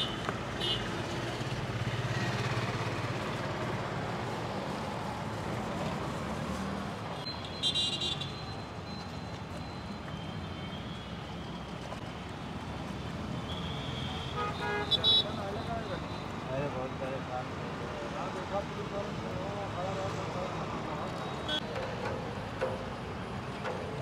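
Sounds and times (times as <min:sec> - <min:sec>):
street traffic noise: 0:00.0 - 0:24.0
car horn tooting: 0:13.5 - 0:15.4.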